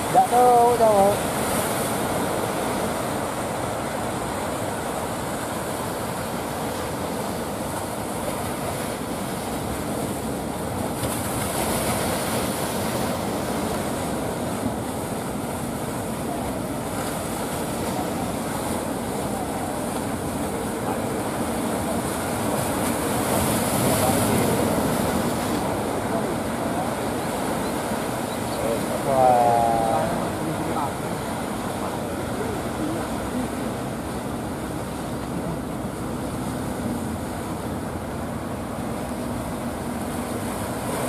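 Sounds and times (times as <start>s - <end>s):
ocean surf breaking: 0.0s - 41.0s.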